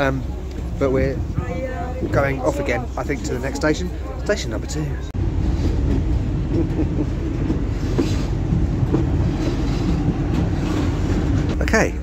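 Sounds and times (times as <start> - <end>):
train carriage rumble: 0.0 - 12.0
wheels clacking on track: 5.4 - 11.8.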